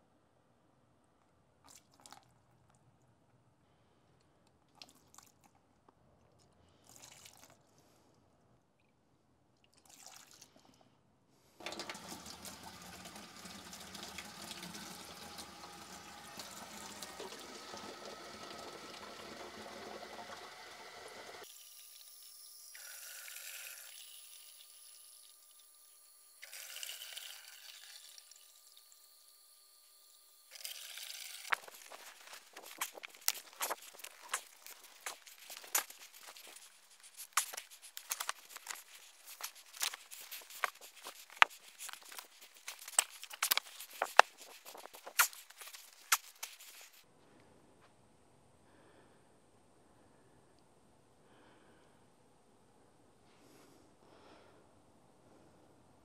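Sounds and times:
cleaning liquid pouring: 11.6s - 21.5s, 26.4s - 47.0s
tap water running into container: 11.6s - 21.8s, 26.4s - 47.0s.

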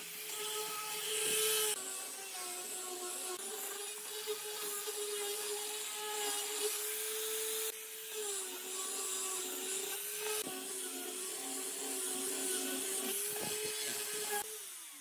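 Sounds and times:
angle grinder motor whine: 0.0s - 15.0s.

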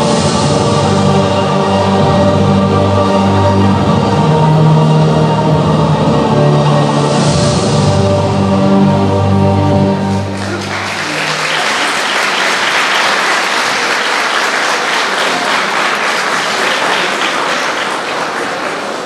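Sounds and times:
backing music held chord: 0.0s - 18.2s
audience applause: 10.1s - 19.0s.

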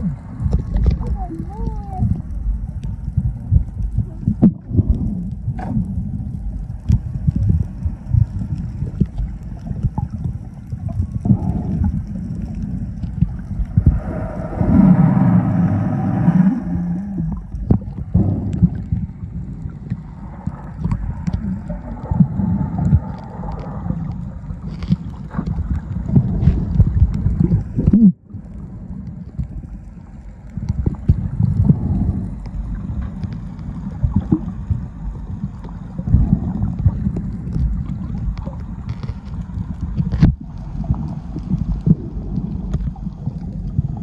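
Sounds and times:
muffled underwater rumble: 0.0s - 44.0s
faint clicks: 0.5s - 14.4s.

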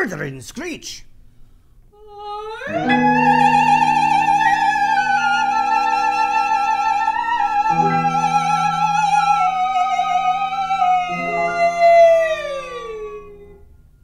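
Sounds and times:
high wavering sung note: 2.6s - 13.7s
piano and ensemble chords: 2.8s - 13.8s.

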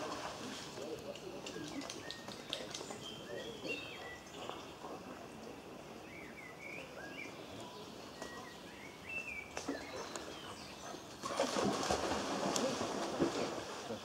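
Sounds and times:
outdoor background hiss: 0.0s - 14.0s
birds chirping: 0.8s - 11.3s.

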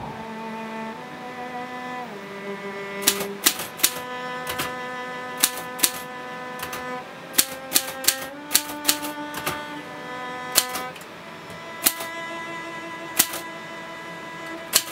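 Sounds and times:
bowed string music: 0.0s - 14.9s
typewriter keys clacking: 3.0s - 4.7s, 5.4s - 6.0s, 6.6s - 6.8s, 7.4s - 9.6s, 10.6s - 11.0s, 11.8s - 12.1s, 13.2s - 13.4s.

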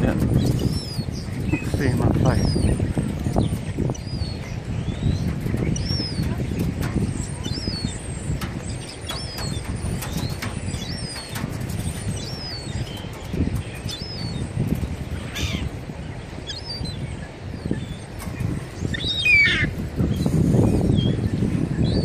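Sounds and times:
gulls calling: 0.0s - 22.0s
wind on microphone: 0.0s - 22.0s
wings flapping: 5.2s - 15.5s.

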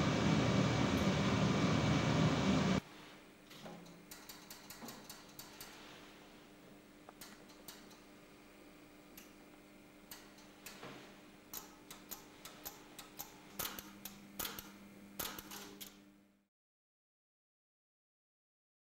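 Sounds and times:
lower hum: 0.0s - 3.4s
steady low hum: 0.0s - 16.5s.

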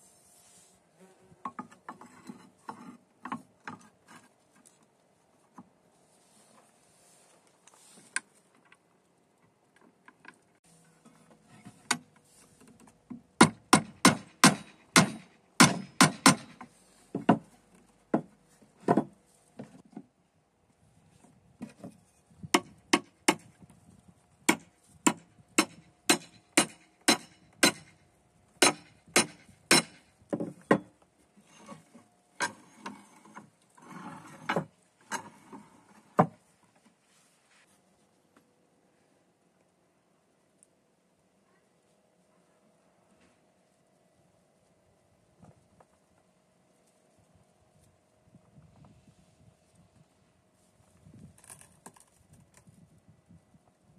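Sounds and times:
sharp metal knocks: 13.4s - 16.6s, 24.5s - 28.0s, 28.6s - 30.9s.

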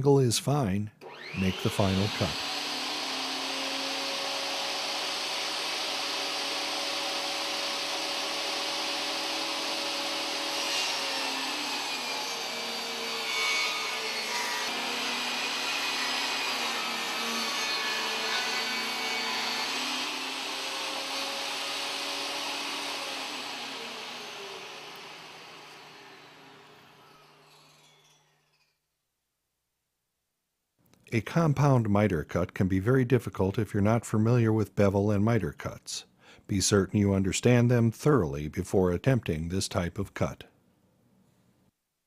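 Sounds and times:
table saw cutting wood: 1.0s - 28.4s.

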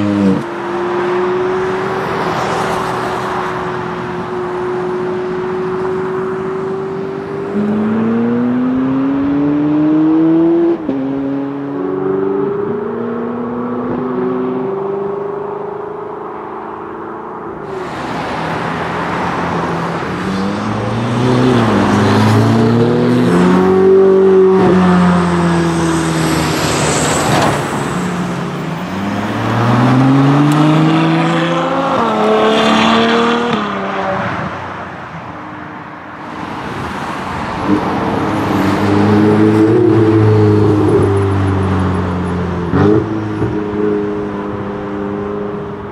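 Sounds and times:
cars revving and driving past: 0.0s - 45.9s
sports car accelerating and shifting: 0.0s - 45.9s.

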